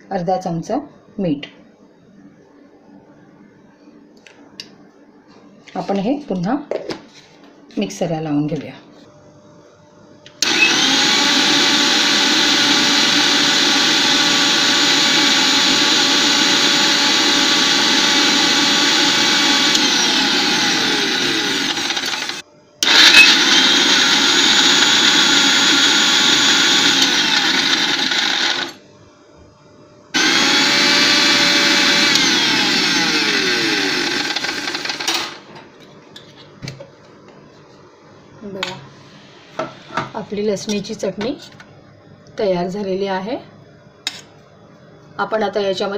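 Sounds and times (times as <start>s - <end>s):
mixer grinder motor running: 10.4s - 28.8s, 30.2s - 35.5s.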